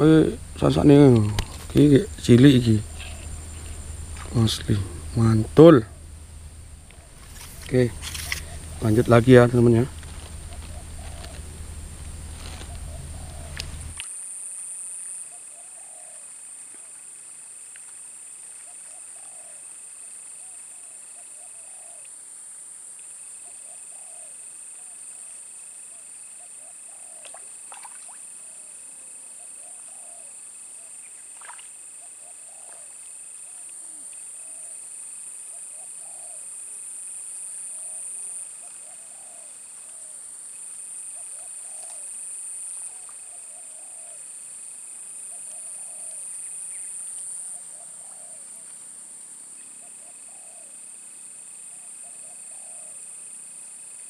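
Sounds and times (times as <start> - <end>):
short low animal calls: 0.0 - 14.0
high-pitched insect drone: 0.0 - 16.6
lower insect tone: 0.0 - 54.0.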